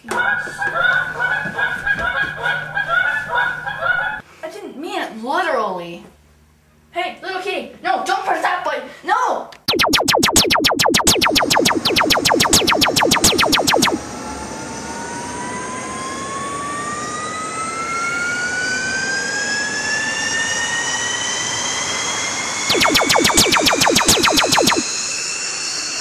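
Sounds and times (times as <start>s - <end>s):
rapid electric zaps: 9.7s - 14.0s
rising electronic whine: 9.7s - 14.4s, 22.6s - 25.2s.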